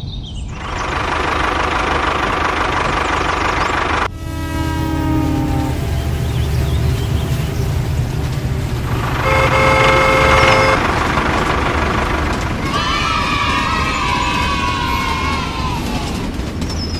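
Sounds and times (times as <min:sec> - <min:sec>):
train rumble: 0:00.3 - 0:16.9
wavering whistle-like tone: 0:04.1 - 0:07.6
train horn: 0:04.1 - 0:11.1.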